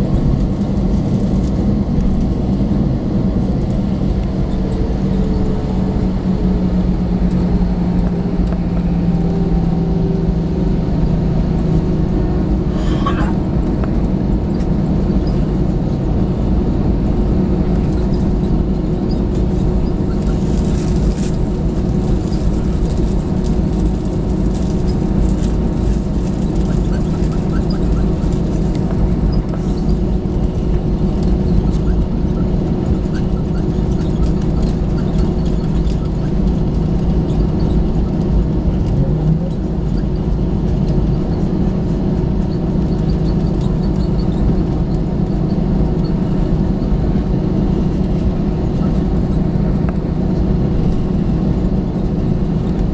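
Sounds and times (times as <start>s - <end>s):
airliner cabin engine drone: 0.0s - 52.9s
constant low hum: 0.0s - 52.9s.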